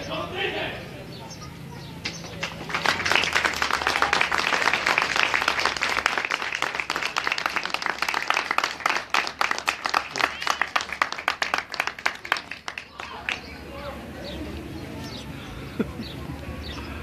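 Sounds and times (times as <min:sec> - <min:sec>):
crowd applause: 0:02.3 - 0:13.6.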